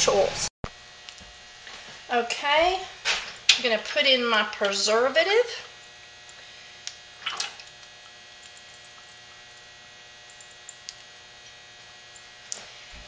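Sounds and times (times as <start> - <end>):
faint mains hum: 0.0 - 13.0
liquid pouring splash: 7.2 - 7.8.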